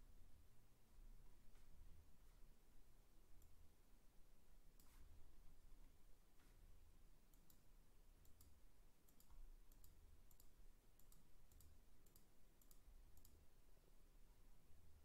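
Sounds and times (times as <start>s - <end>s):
faint low hum: 0.0s - 15.0s
faint sharp clicks: 7.3s - 13.4s.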